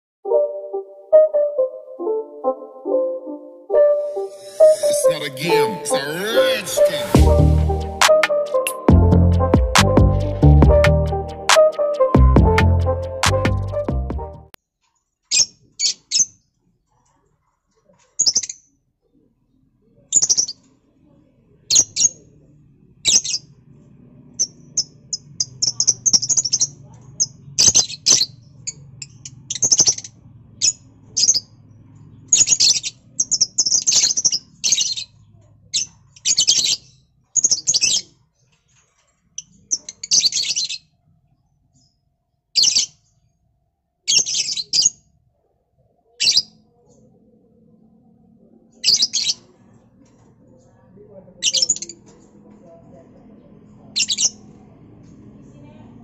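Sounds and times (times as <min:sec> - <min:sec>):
lovebirds chirping: 0:20.1 - 0:20.7, 0:24.4 - 0:38.5, 0:39.4 - 0:41.0, 0:42.6 - 0:43.2, 0:48.7 - 0:49.5.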